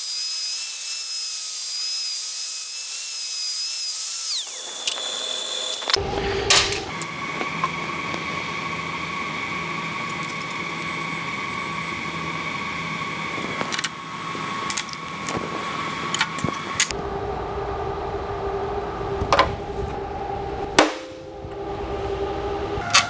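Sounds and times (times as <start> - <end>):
steady droning tones: 5.8 - 23.0.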